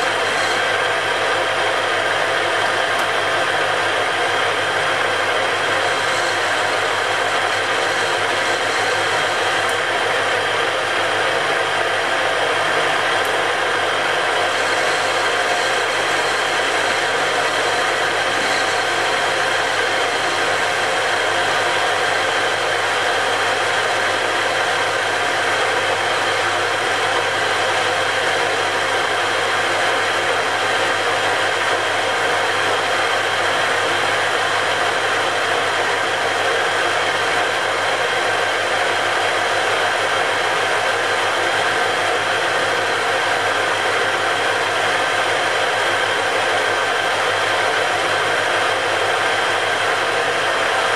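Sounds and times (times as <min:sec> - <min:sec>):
metal lathe humming and whining: 0:00.0 - 0:50.9.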